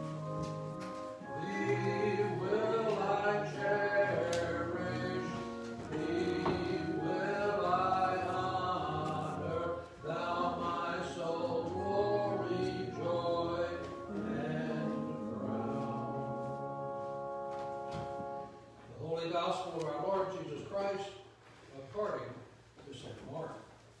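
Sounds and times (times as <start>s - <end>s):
voices singing a slow hymn: 0.0s - 18.4s.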